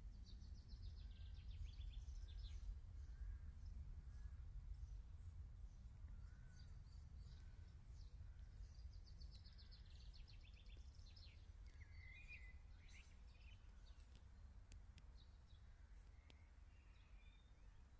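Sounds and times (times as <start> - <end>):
songbirds calling: 6.1 - 17.9.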